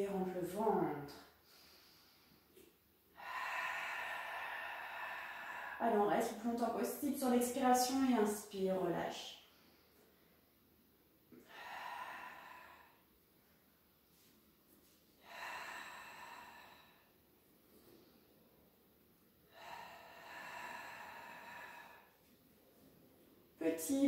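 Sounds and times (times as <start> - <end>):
woman breathing through the mouth: 1.4 - 5.8, 11.3 - 13.3, 15.1 - 18.3, 19.4 - 22.4.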